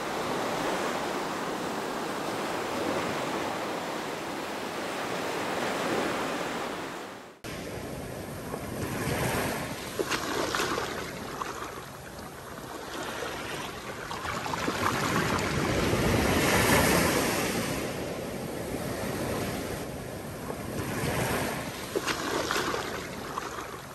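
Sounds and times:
small waves breaking on beach: 0.0s - 23.9s.

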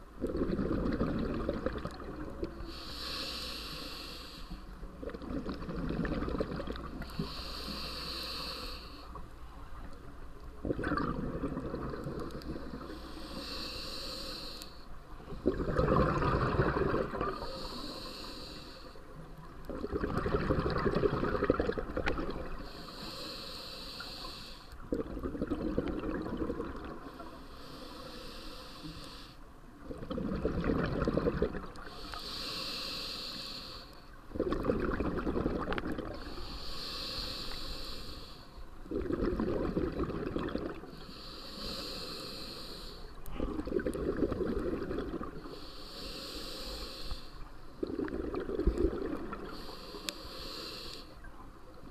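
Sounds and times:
exhaled bubbles rushing: 0.2s - 2.4s, 5.0s - 7.0s, 10.6s - 12.8s, 15.3s - 17.4s, 19.7s - 22.6s, 24.9s - 27.0s, 29.9s - 31.7s, 34.3s - 36.2s, 38.9s - 40.9s, 43.5s - 45.4s, 47.8s - 49.5s
regulator hiss on inhale: 2.5s - 5.0s, 7.0s - 9.9s, 12.0s - 15.2s, 17.0s - 19.5s, 22.4s - 24.8s, 27.0s - 29.5s, 31.7s - 34.2s, 36.0s - 38.8s, 40.7s - 43.8s, 45.2s - 47.9s, 49.2s - 51.8s.

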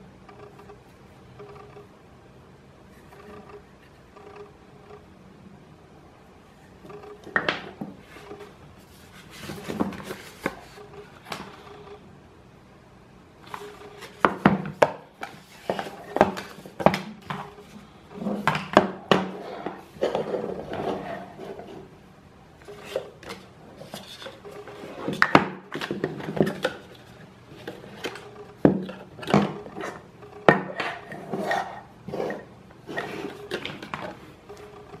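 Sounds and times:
objects clicking and knocking on desk: 13.5s - 17.5s.

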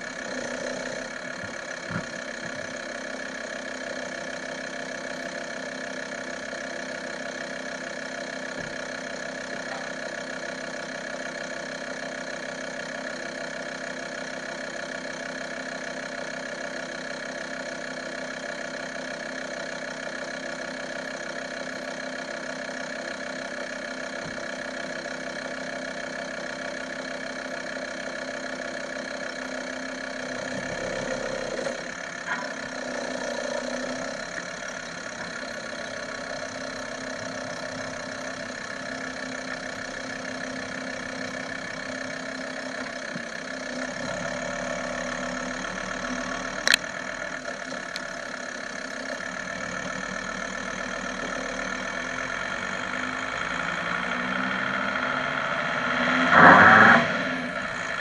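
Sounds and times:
road noise: 0.0s - 4.0s
diesel engine running: 0.0s - 58.0s.

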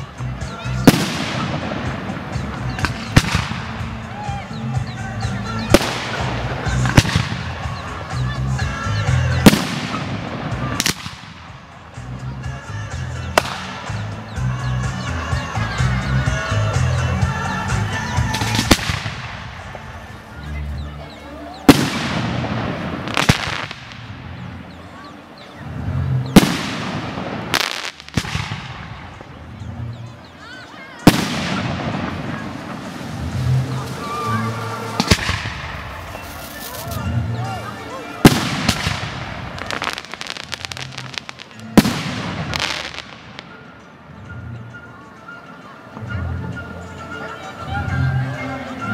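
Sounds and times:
firework cracks: 0.0s - 4.0s, 5.7s - 8.1s, 9.4s - 11.7s, 13.4s - 14.0s, 18.3s - 20.0s, 21.7s - 24.2s, 26.3s - 29.4s, 31.0s - 37.1s, 38.0s - 43.6s
firework bangs: 0.0s - 4.1s, 5.4s - 8.2s, 9.2s - 11.8s, 13.4s - 14.0s, 18.2s - 20.1s, 21.7s - 24.5s, 25.7s - 29.7s, 31.0s - 43.6s
music: 0.0s - 48.9s.

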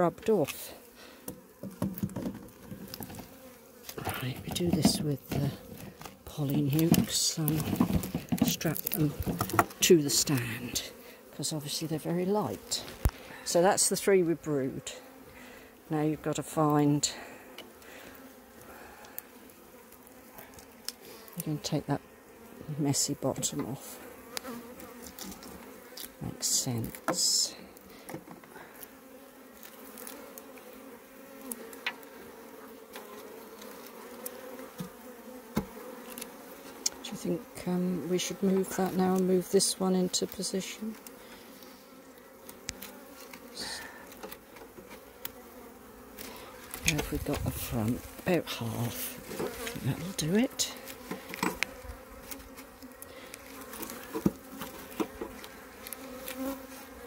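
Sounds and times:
bees buzzing: 0.0s - 57.0s.

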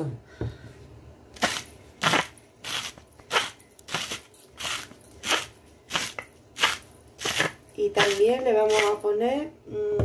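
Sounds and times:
gritty bursts of salt: 1.4s - 9.0s.

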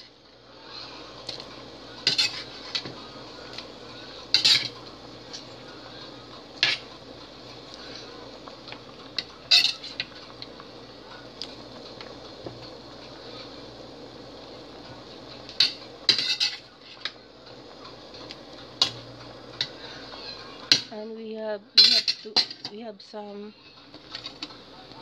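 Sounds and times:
faint steady hiss: 0.0s - 25.0s
metal utensil clinking on pot: 4.3s - 5.4s, 9.2s - 10.1s, 15.6s - 16.7s, 21.8s - 22.7s.

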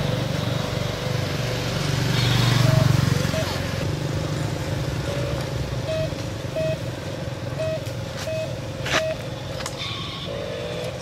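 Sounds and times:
short beeps: 5.8s - 6.8s, 7.6s - 9.2s.

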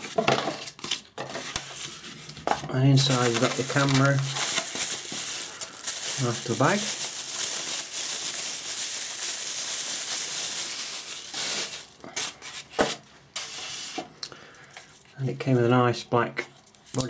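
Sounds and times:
plastic bag crinkling: 2.8s - 12.8s.

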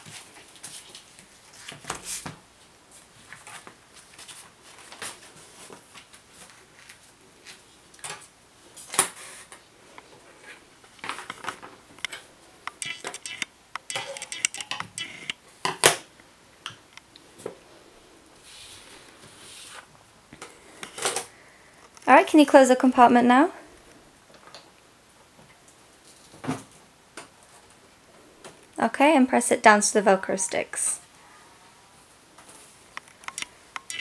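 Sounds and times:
stationery taps and clicks: 12.7s - 15.4s.

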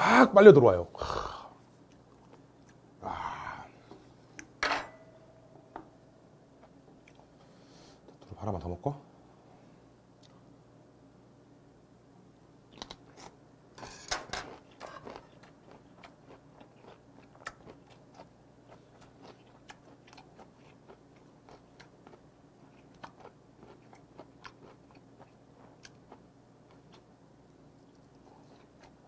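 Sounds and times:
crunchy chewing clicks: 1.8s - 2.8s, 12.7s - 13.4s, 14.5s - 27.1s.

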